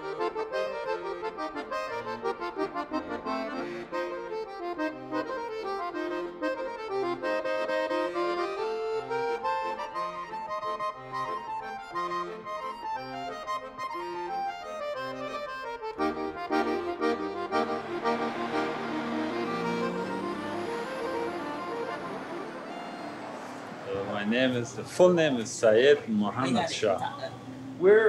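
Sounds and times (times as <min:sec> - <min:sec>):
quick running melody: 0:15.9 - 0:24.4.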